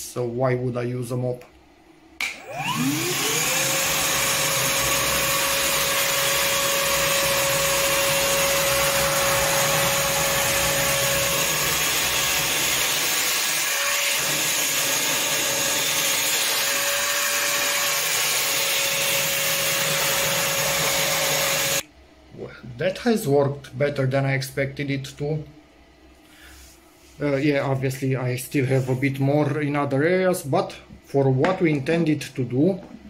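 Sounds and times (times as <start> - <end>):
wet vacuum whining: 2.2 - 21.8.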